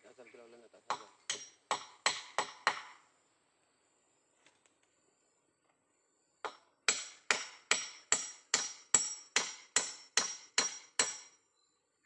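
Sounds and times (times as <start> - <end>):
hammer driving nail into wood: 0.9 - 3.0, 6.5 - 11.3.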